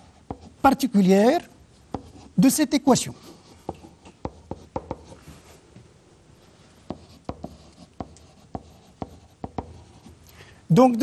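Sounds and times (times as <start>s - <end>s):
stylus tapping on whiteboard: 3.6s - 5.2s, 6.9s - 9.9s.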